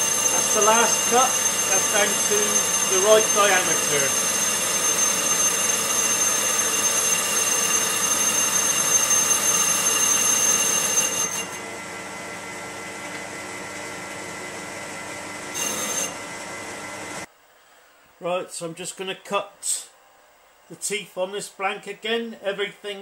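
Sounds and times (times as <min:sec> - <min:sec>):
metal lathe high-pitched whine: 0:00.0 - 0:11.8, 0:15.5 - 0:16.3.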